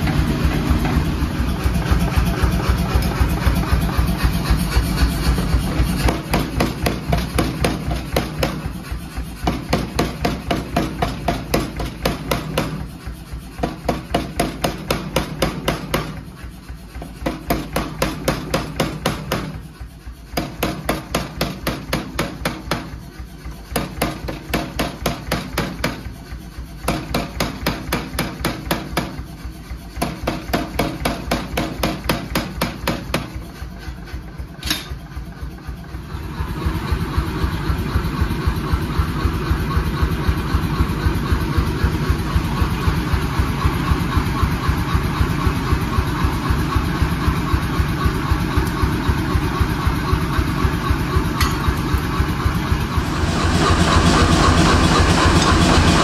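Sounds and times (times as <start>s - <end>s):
power hammer blows on metal: 0.0s - 16.3s, 23.6s - 26.2s
machine running hum: 0.0s - 24.4s, 33.5s - 56.0s.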